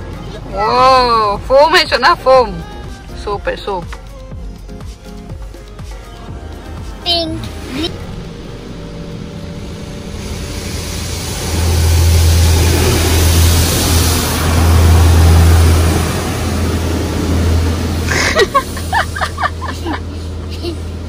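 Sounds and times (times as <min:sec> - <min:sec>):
deep rumble: 0:06.3 - 0:20.0.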